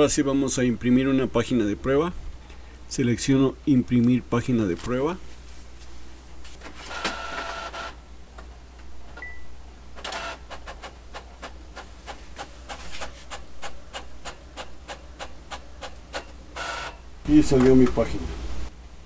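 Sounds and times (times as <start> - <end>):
rapid mechanical printer strokes: 6.8 - 7.9, 10.0 - 17.0
printer motor whine: 6.8 - 8.0, 10.0 - 10.5, 16.5 - 17.0.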